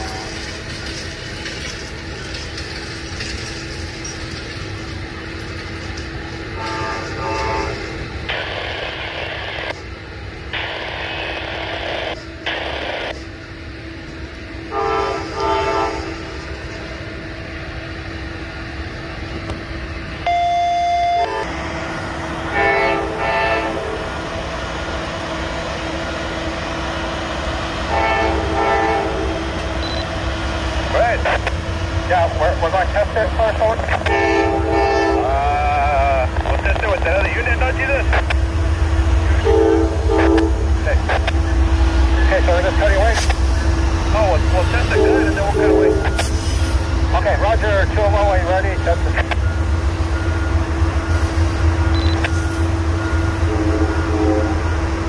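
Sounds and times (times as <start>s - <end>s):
low hum: 0.0s - 35.2s
locomotive air horn blasts: 6.5s - 8.0s, 14.7s - 16.3s, 22.5s - 24.1s, 27.9s - 29.5s, 34.0s - 35.4s, 39.3s - 40.8s, 44.8s - 46.2s, 53.0s - 54.8s.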